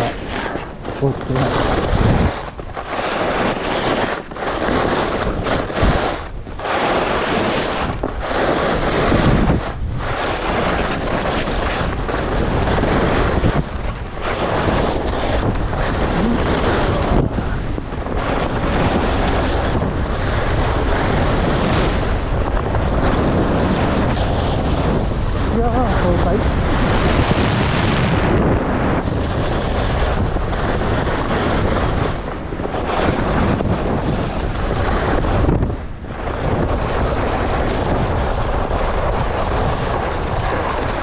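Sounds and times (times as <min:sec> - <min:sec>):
skis hissing on snow: 0:00.0 - 0:11.8
wind on microphone: 0:00.0 - 0:41.0.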